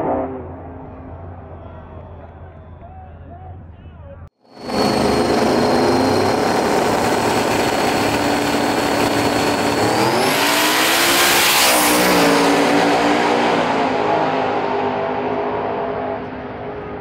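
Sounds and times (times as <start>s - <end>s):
high turbo whine: 4.4s - 17.0s
race car engines revving: 4.6s - 17.0s.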